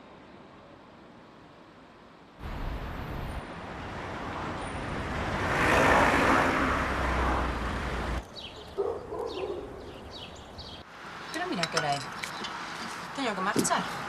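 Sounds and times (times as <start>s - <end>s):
car passing close by: 2.4s - 8.2s.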